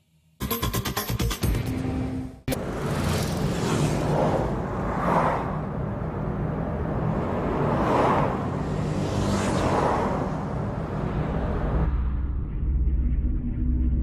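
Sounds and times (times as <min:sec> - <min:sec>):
low rumble: 0:10.1 - 0:14.0.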